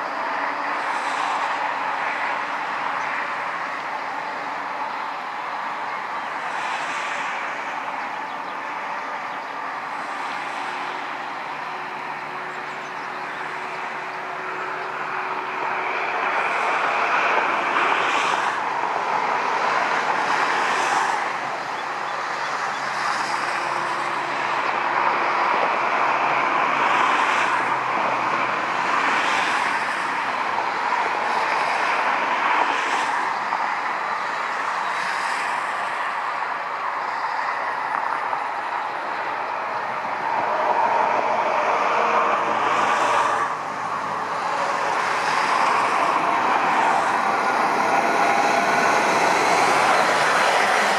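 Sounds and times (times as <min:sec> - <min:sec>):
jet engines whining: 0:00.0 - 0:50.9.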